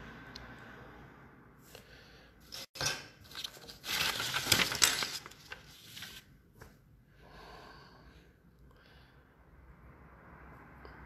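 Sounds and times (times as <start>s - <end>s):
paper rustling and crinkling: 3.2s - 6.7s.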